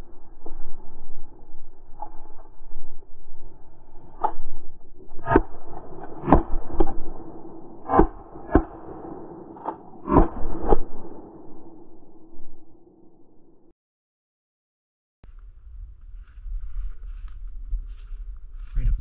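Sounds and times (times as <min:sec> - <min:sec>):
steady low rumble: 0:00.0 - 0:13.7, 0:15.3 - 0:19.0.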